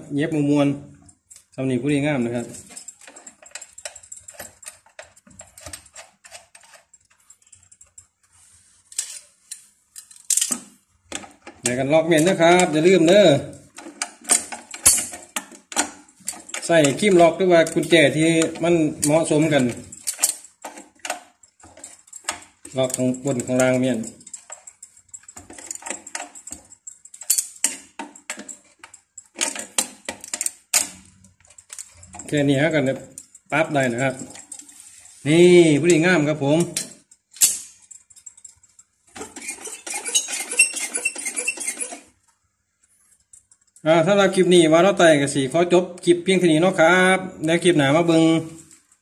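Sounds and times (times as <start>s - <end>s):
hand tool clicking on metal: 2.4s - 8.1s, 8.9s - 34.7s, 35.7s - 42.2s.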